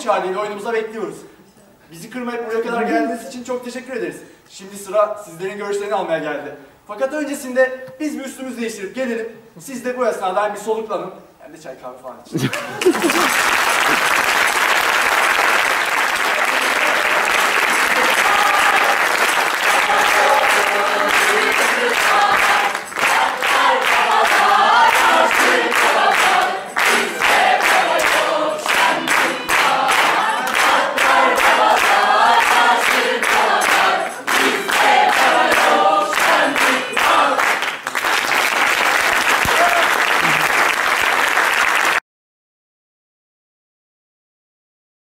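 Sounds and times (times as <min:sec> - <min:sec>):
audience applauding: 0:12.4 - 0:42.0
group of voices singing: 0:16.4 - 0:37.7.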